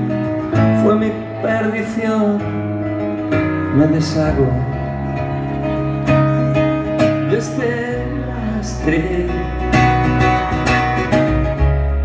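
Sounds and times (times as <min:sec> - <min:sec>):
bass guitar: 0:00.0 - 0:12.0
strummed acoustic guitar: 0:00.0 - 0:12.0.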